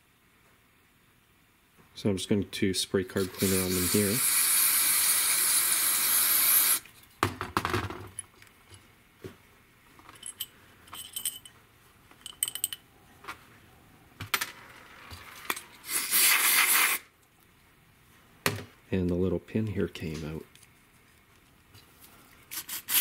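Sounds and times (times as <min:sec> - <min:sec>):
aerosol spray hissing: 0:03.2 - 0:06.8, 0:15.8 - 0:17.1
small metallic clinks: 0:10.0 - 0:12.9.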